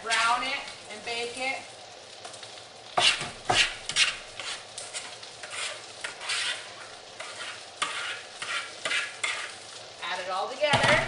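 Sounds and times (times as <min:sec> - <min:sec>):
spoon scraping mash in bowl: 0:03.0 - 0:09.6.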